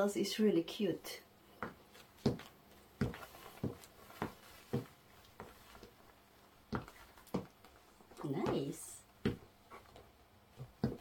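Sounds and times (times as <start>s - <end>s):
high heels clicking on hard floor: 1.6s - 6.0s, 6.7s - 11.0s.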